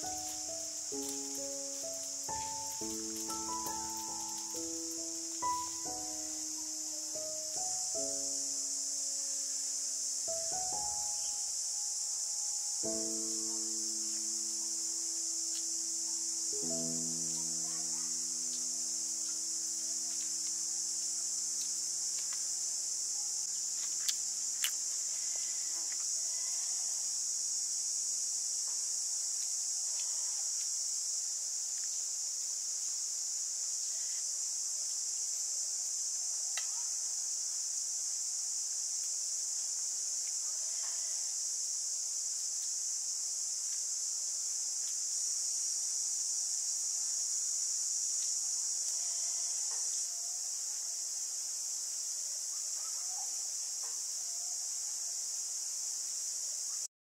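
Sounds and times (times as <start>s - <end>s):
high-pitched insect chorus buzzing: 0.0s - 56.9s.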